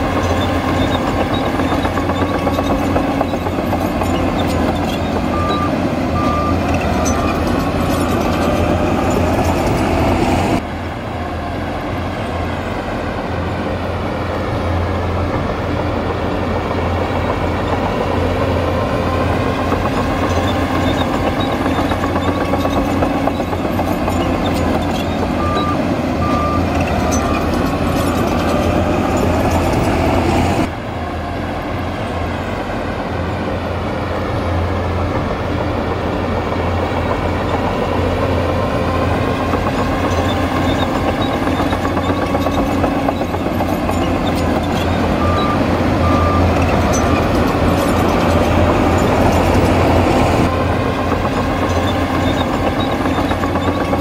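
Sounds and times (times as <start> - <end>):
heavy diesel machinery running: 0.0 - 54.0
reversing alarm beeps: 0.2 - 8.1, 20.0 - 27.6, 45.2 - 48.1.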